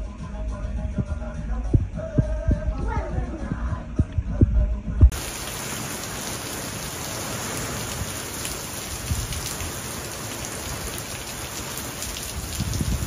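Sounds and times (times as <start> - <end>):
heavy rain on water and paving: 5.1 - 13.0.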